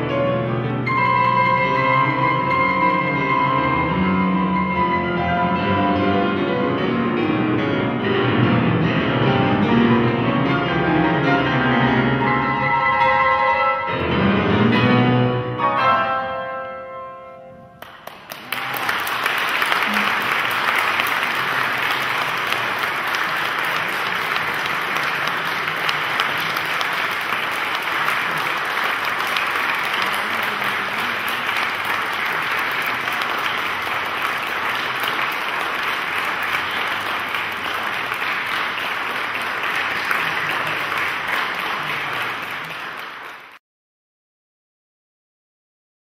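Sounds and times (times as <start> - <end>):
audience applauding: 17.8 - 43.6.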